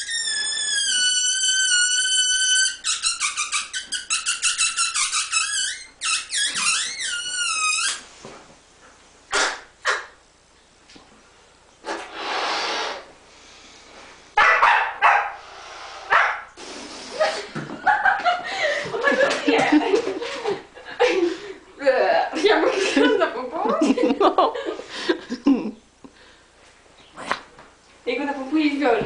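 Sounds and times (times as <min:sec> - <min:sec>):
dog barking: 0:14.4 - 0:15.4, 0:16.1 - 0:16.5.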